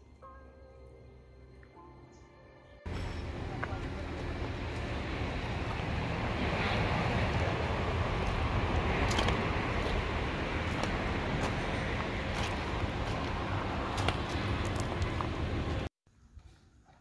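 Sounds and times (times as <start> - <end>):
wind buffeting microphone: 3.3 - 15.9.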